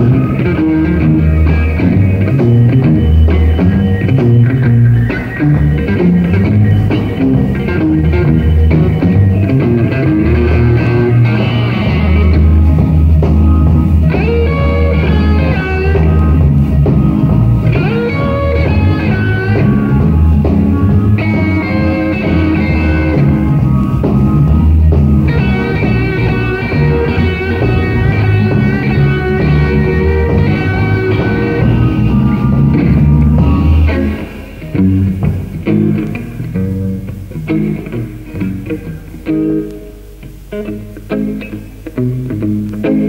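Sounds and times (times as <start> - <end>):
blues-rock band playing live: 0.0 - 43.0
electric guitar lead lines: 0.0 - 43.0.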